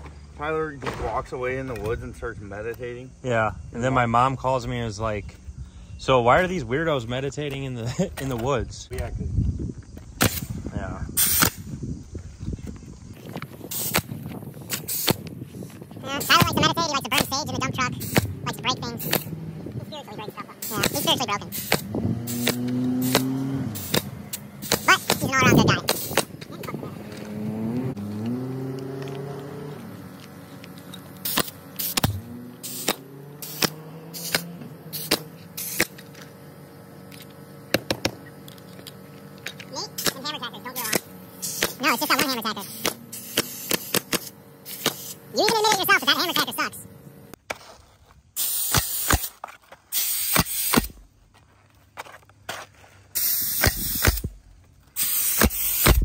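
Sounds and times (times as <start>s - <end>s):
nailer firing with air hiss: 10.1s - 11.8s, 13.5s - 19.4s, 20.6s - 26.8s, 31.2s - 36.3s, 37.2s - 38.3s, 39.8s - 46.5s, 48.4s - 51.0s, 53.1s - 56.0s
motor humming: 12.4s - 47.4s.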